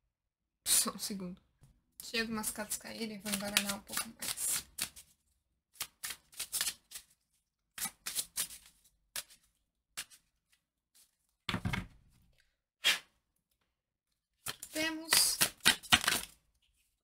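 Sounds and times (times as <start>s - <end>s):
cards shuffling swishes: 3.3s - 5.2s, 7.8s - 10.3s, 12.8s - 13.2s.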